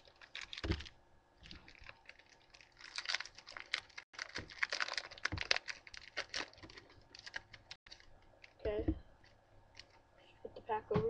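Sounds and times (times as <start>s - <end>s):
foil wrapper tearing and crinkling: 0.0s - 8.6s.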